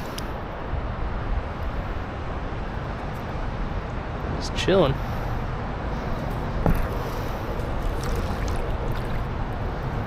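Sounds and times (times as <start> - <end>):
river water rushing: 6.4 - 10.0.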